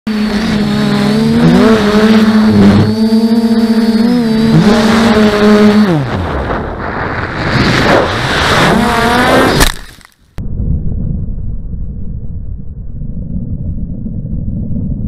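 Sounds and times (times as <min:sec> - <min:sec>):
drone motors humming: 0:00.1 - 0:07.0
rising whine: 0:00.1 - 0:09.7
low rumble: 0:10.4 - 0:15.0.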